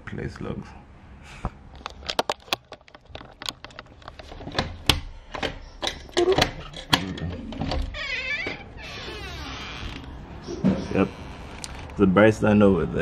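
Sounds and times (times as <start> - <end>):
sharp clicks and knocks: 1.7 - 8.6.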